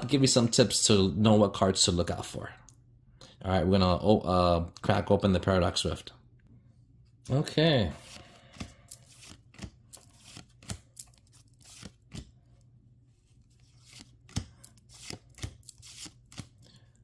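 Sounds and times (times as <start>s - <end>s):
trading cards swishing and clicking: 8.0s - 12.4s, 13.3s - 16.6s.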